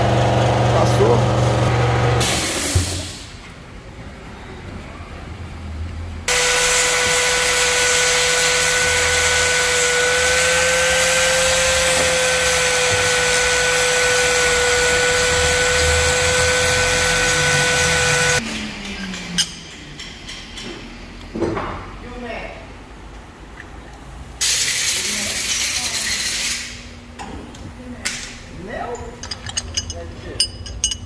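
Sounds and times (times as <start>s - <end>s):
angle grinder grinding metal: 6.3s - 18.4s.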